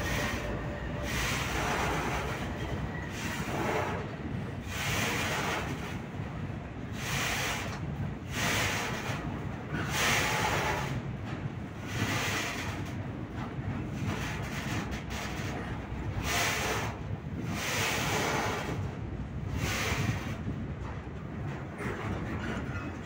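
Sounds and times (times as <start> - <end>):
train rumble: 0.0 - 23.0
wind buffeting microphone: 0.0 - 23.0.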